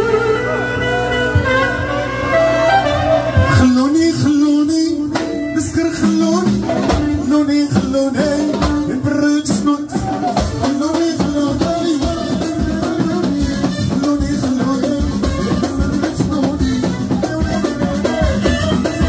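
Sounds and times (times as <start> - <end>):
violin melody: 0.0 - 3.8
drum kit and hand percussion: 5.1 - 19.0.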